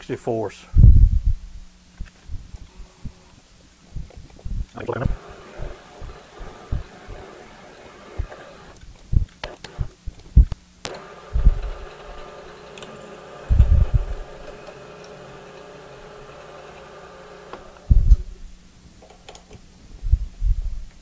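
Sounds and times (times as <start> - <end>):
milling machine humming: 4.8 - 8.8, 10.9 - 18.4
sharp clicks: 7.9 - 11.9.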